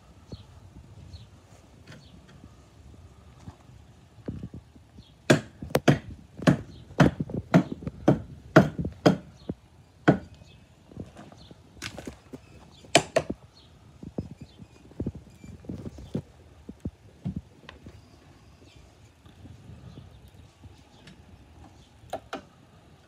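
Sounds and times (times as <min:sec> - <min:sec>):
hammer striking wooden post: 0:05.3 - 0:09.3, 0:10.0 - 0:10.3.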